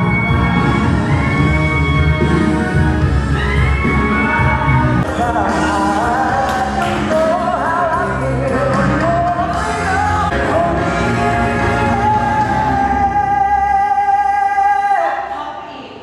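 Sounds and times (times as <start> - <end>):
amplified pop backing music: 0.0 - 15.6
man singing into a microphone: 4.2 - 15.3.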